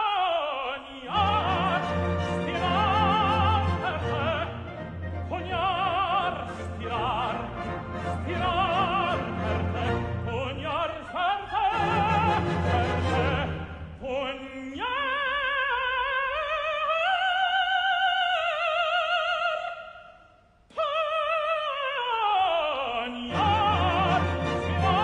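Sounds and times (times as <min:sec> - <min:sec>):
operatic tenor singing: 0:00.0 - 0:20.0, 0:20.7 - 0:25.0
orchestra playing: 0:01.1 - 0:13.9, 0:23.3 - 0:25.0.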